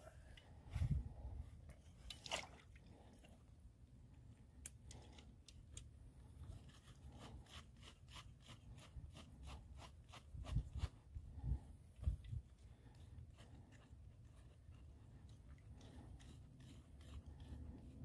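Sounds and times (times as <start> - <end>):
hands working in wet mud: 1.8 - 3.4.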